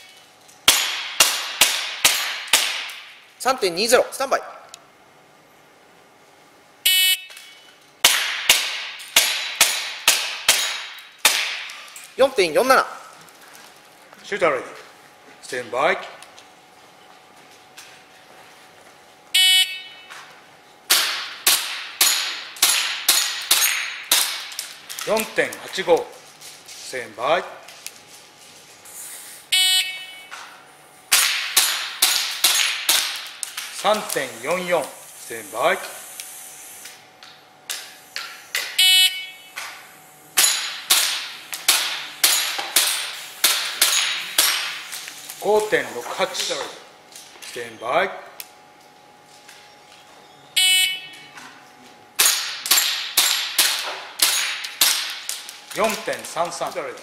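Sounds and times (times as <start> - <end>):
pellets striking steel plates: 0.0 - 3.2, 7.2 - 12.0, 20.9 - 25.4, 31.1 - 34.7, 39.5 - 45.0, 52.2 - 57.0
airsoft pistol shots: 0.6 - 3.2, 8.0 - 11.8, 20.9 - 24.6, 31.1 - 33.4, 40.4 - 44.8, 52.2 - 55.3.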